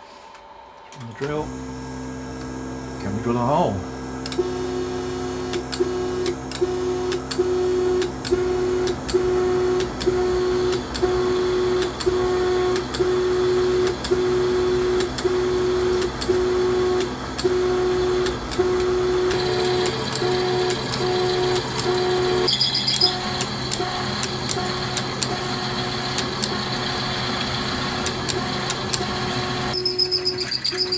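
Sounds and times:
drive motor whine: 0:00.5 - 0:30.9
drill cutting hiss: 0:04.2 - 0:30.9.

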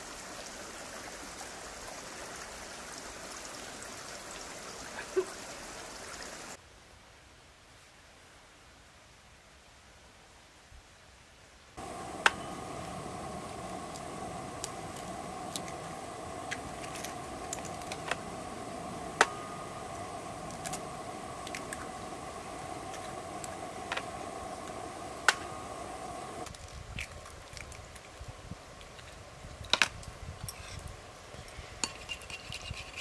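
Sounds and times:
steady fire hiss: 0:00.0 - 0:06.6, 0:11.7 - 0:33.0
fire popping and snapping: 0:11.8 - 0:31.4
wood fire crackling: 0:11.8 - 0:32.0.

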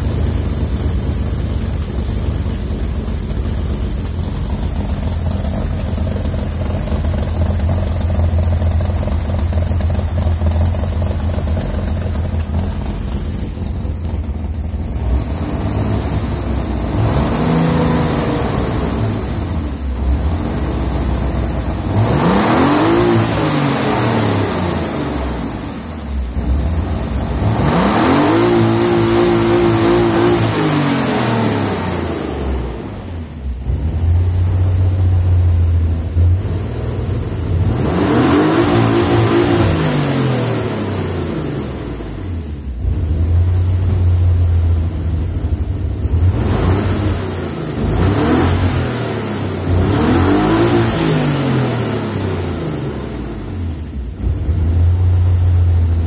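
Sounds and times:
car engine idling: 0:00.0 - 0:56.0
car engine revving: 0:00.0 - 0:56.0.

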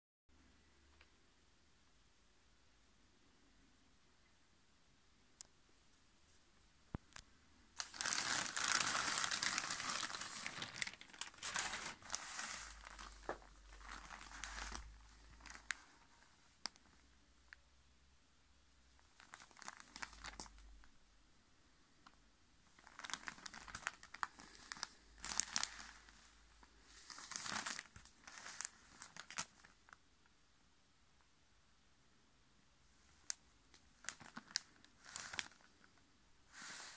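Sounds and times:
plastic bag crinkling and tearing: 0:07.8 - 0:16.9, 0:19.0 - 0:20.8, 0:22.8 - 0:29.9, 0:33.2 - 0:35.9.

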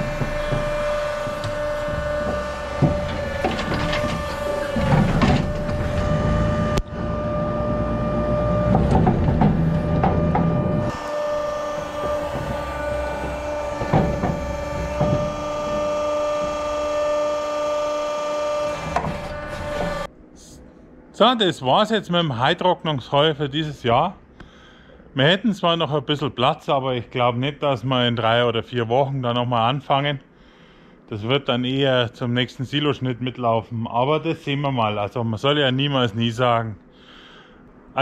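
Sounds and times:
sharp knocks: 0:00.0 - 0:06.2, 0:08.6 - 0:16.7
trolley rumbling and clattering: 0:00.0 - 0:15.6
electric motor whine: 0:00.0 - 0:20.1.

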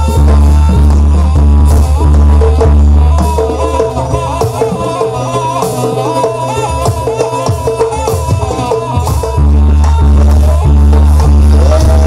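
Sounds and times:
heavy deep bass: 0:00.0 - 0:03.3, 0:09.1 - 0:12.0
drums: 0:00.0 - 0:12.0
rattling percussion: 0:00.0 - 0:12.0.

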